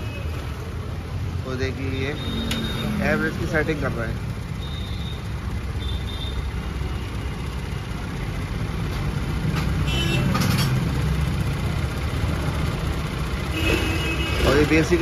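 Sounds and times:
scooter engine idling: 3.6s - 10.1s.

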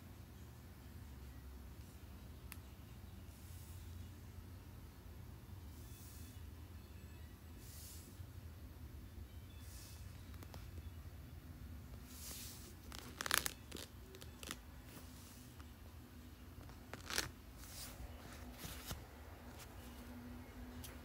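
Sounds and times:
faint low hum: 0.0s - 21.0s
scratchy rustling: 12.0s - 15.5s, 16.6s - 20.1s.

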